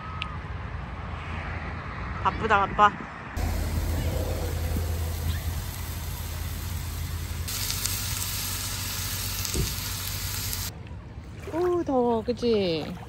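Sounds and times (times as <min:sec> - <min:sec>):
steady low hum: 0:03.4 - 0:10.7
steak sizzling on grill: 0:03.4 - 0:10.7.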